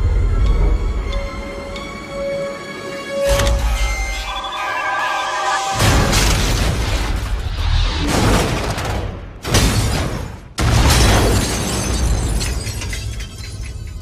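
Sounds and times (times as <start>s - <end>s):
film score: 0.0s - 11.4s
shattering and crackling debris: 8.1s - 14.0s.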